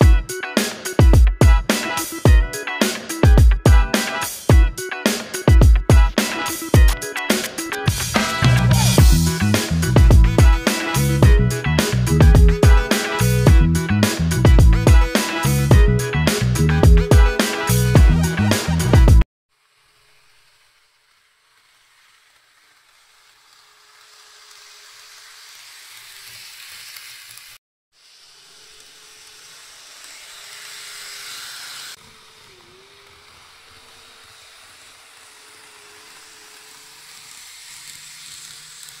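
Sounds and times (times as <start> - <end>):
model train running on track: 19.6 - 39.0.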